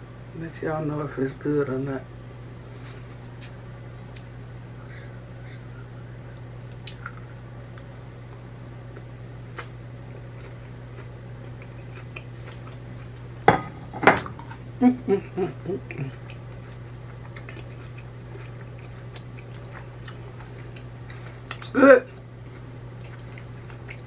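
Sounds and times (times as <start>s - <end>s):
steady low hum: 0.0s - 24.0s
woman humming mm-mm: 14.8s - 16.2s.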